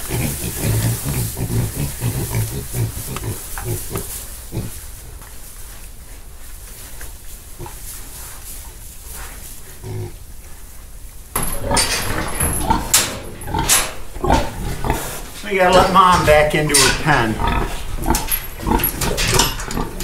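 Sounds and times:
piglets grunting: 0:00.0 - 0:05.2, 0:09.7 - 0:10.3, 0:11.4 - 0:20.0.

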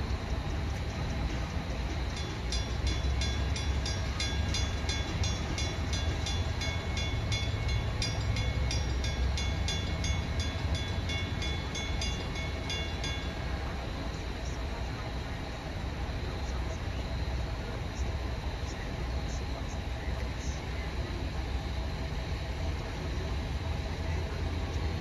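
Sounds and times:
railroad crossing bell ringing: 0:00.0 - 0:16.4.

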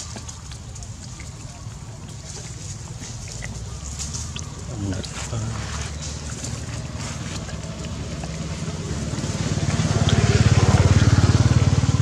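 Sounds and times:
vehicle engine running: 0:02.9 - 0:12.0.

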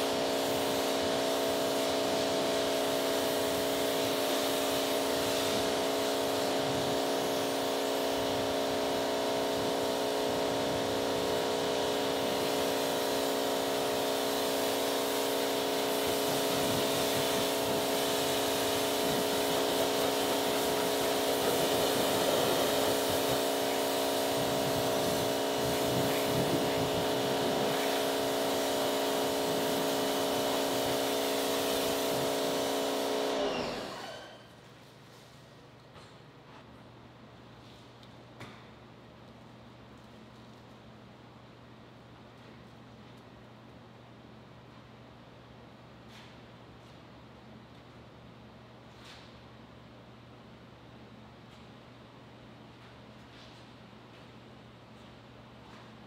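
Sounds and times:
pressure washer spray hiss: 0:00.0 - 0:34.4
pressure washer machine hum: 0:00.0 - 0:34.5.

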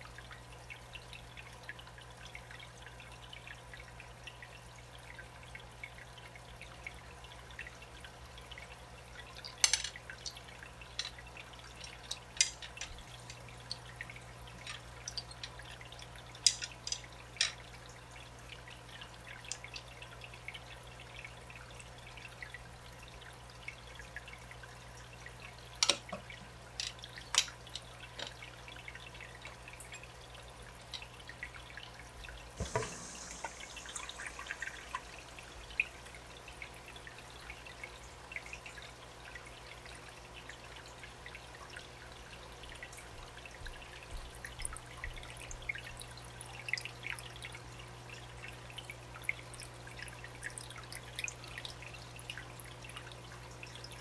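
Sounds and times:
water drips: 0:00.0 - 0:54.0
water splashing and trickling: 0:00.0 - 0:54.0
sharp plastic clicks: 0:16.5 - 0:17.6.

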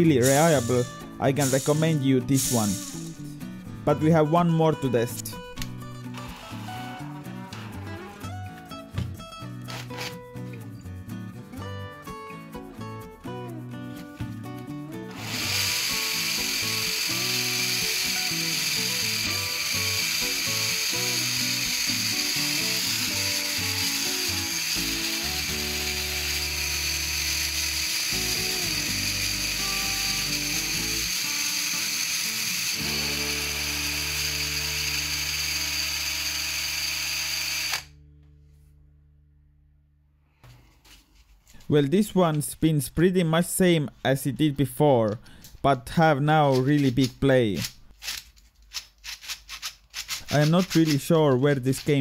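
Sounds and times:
drill spinning plastic gears: 0:06.1 - 0:06.9, 0:09.7 - 0:10.1, 0:15.1 - 0:37.9, 0:48.0 - 0:52.0.

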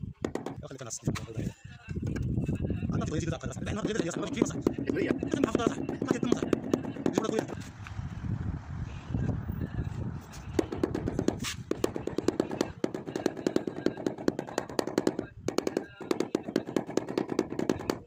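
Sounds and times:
rubber mallet tapping on tiles: 0:03.7 - 0:07.5, 0:10.6 - 0:18.0.

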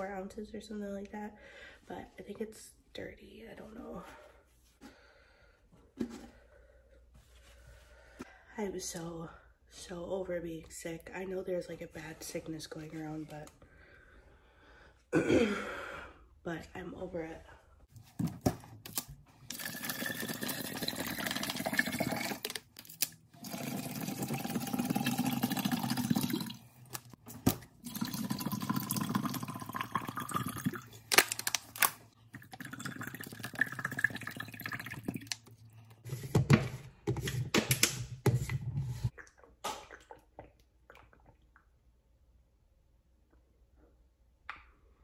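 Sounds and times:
water pouring into plastic jug: 0:19.5 - 0:22.7, 0:23.4 - 0:31.0, 0:32.2 - 0:35.6.

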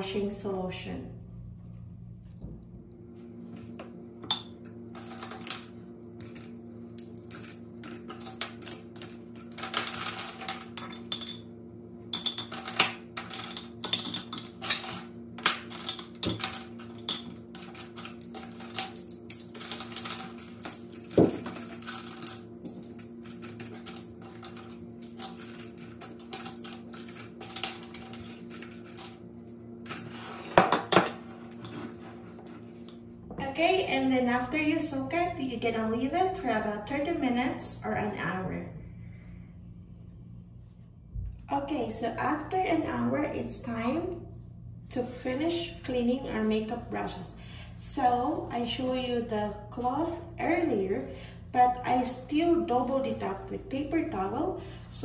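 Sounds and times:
steady low hum: 0:00.0 - 0:55.0
brushes clinking against glass jars: 0:12.2 - 0:29.1.

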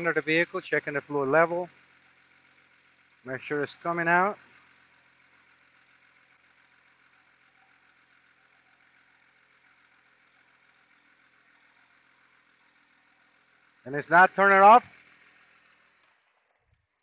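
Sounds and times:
faint car engine idling: 0:00.0 - 0:17.0.

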